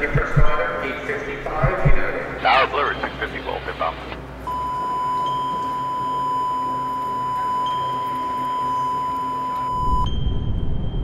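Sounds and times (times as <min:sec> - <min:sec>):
electronic beep tone: 0:04.5 - 0:11.0.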